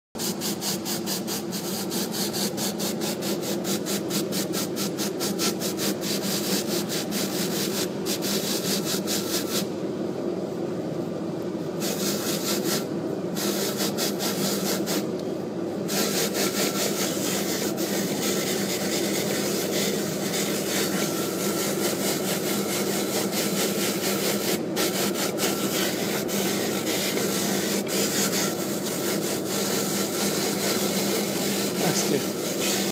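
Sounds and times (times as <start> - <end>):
polishing wheel rasping hiss: 15.8 - 32.9.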